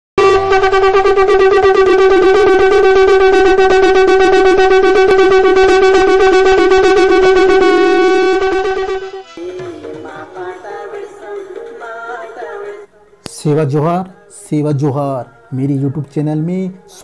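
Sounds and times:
reedy horn-like wind note: 0.2 - 9.5.

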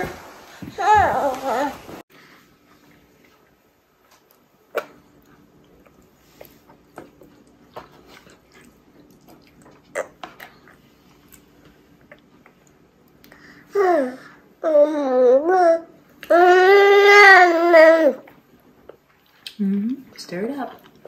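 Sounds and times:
baby chewing food: 3.2 - 13.6.

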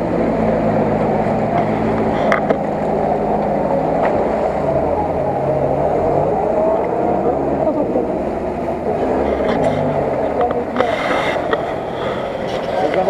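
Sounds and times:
off-road vehicle engine under load: 0.0 - 13.0
water churning and splashing: 0.0 - 13.0.

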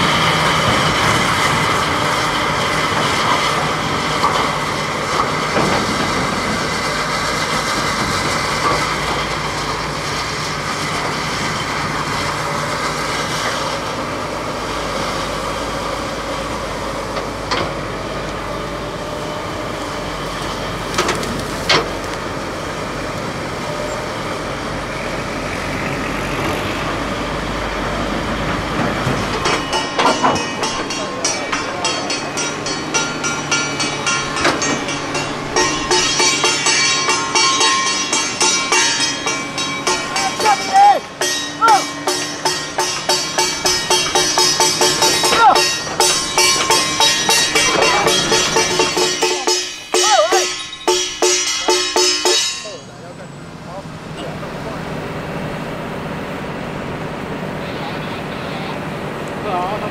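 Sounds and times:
excavator diesel engine under load: 0.0 - 59.9
sharp metal clanks: 29.2 - 53.0.

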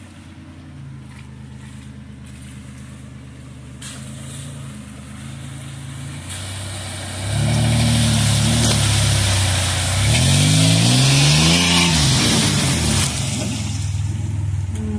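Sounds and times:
water and mud splashing: 0.0 - 14.9
truck engine revving: 3.8 - 14.9.

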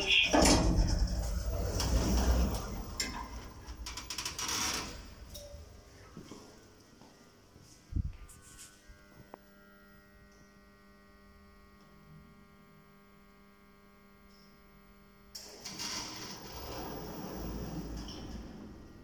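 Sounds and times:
lift doors closing mechanism: 0.0 - 5.9, 15.4 - 19.0
lift electrical hum: 0.0 - 19.0.

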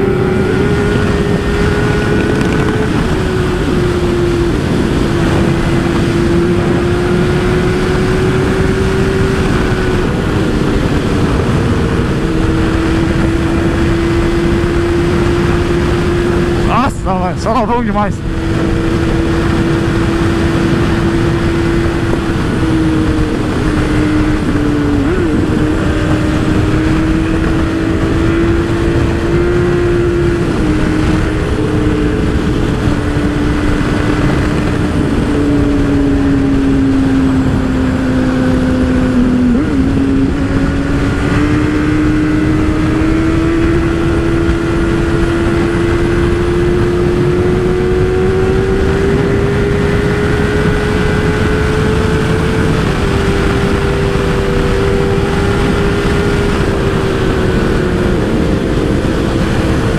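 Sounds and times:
motorcycle engine running: 0.0 - 59.9
wind rush on microphone: 0.0 - 59.9.

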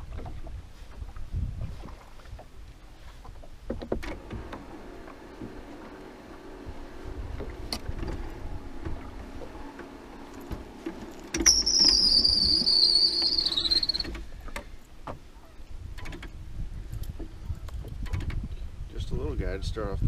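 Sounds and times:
wind buffeting microphone: 0.0 - 2.8, 6.7 - 9.6, 15.7 - 20.0.

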